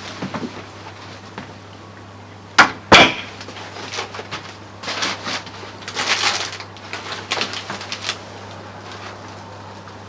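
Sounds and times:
plastic crinkling and crackling: 0:03.4 - 0:10.0.

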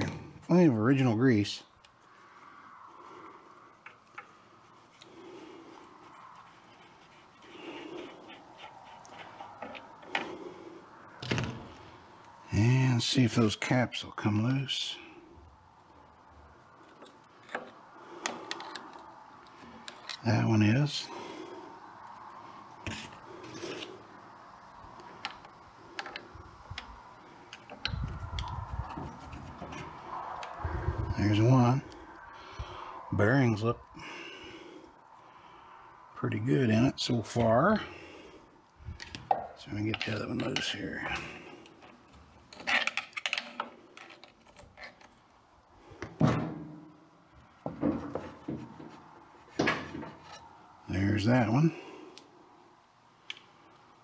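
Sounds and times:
metallic clicks and scraping: 0:06.1 - 0:10.4, 0:16.8 - 0:20.3, 0:39.9 - 0:45.3
heavy metal thunk: 0:46.1 - 0:46.9.

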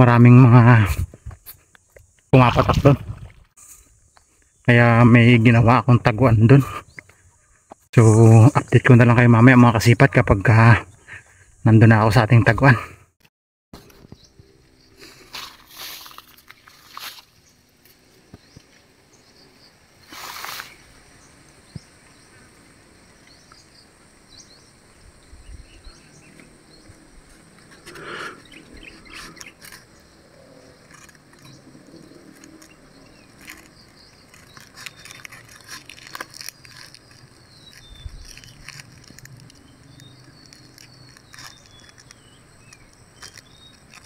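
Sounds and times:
dry leaves rustling and crackling: 0:15.0 - 0:18.0, 0:20.1 - 0:20.9, 0:30.9 - 0:44.0.

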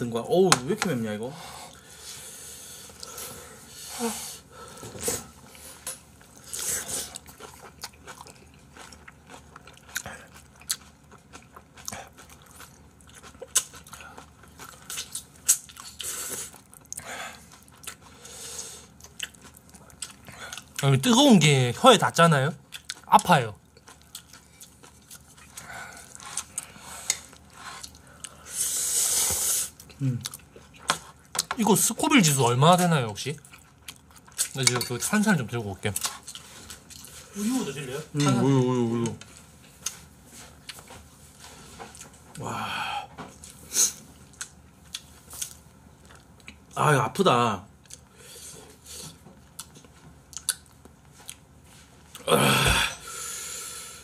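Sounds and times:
faint chewing: 0:04.7 - 0:20.8, 0:22.7 - 0:31.6, 0:33.4 - 0:35.1, 0:43.2 - 0:46.8, 0:47.8 - 0:52.3
soft hissing breath: 0:26.6 - 0:29.8, 0:52.9 - 0:54.0.

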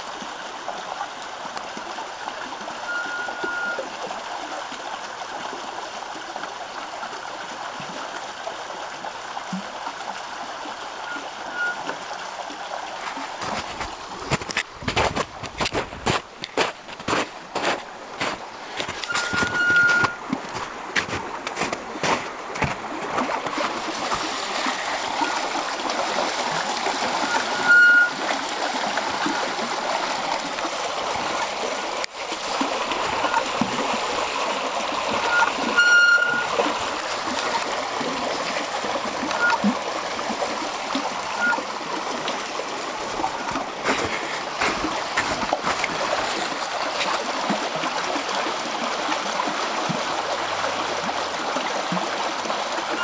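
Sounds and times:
stream rushing and splashing: 0:00.0 - 0:53.0
short high squeaks: 0:02.9 - 0:03.9, 0:11.0 - 0:12.0, 0:18.2 - 0:20.2, 0:27.2 - 0:28.2, 0:33.1 - 0:33.5, 0:35.2 - 0:36.7, 0:39.2 - 0:39.7, 0:41.3 - 0:41.7.

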